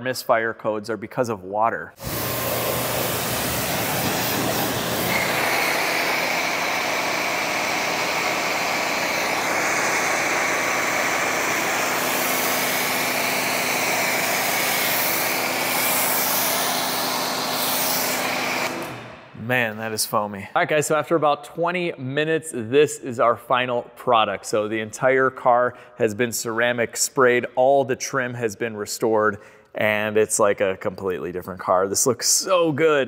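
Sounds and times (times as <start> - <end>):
pressure washer spraying: 2.0 - 19.1.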